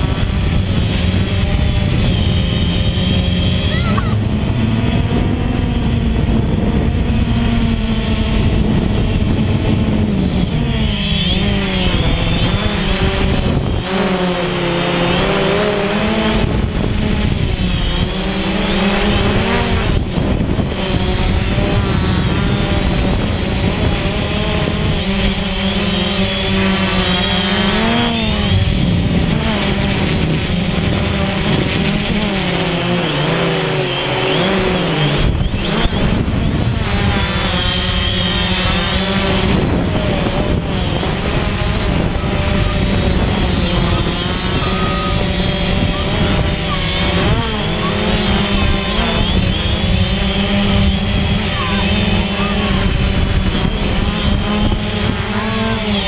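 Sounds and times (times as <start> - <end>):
drone propellers buzzing: 0.0 - 56.0.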